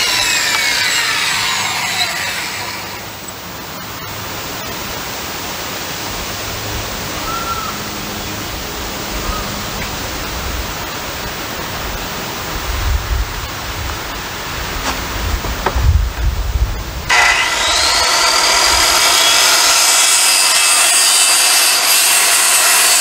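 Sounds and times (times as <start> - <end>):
circular saw cutting wood: 0.0 - 3.4, 17.1 - 23.0.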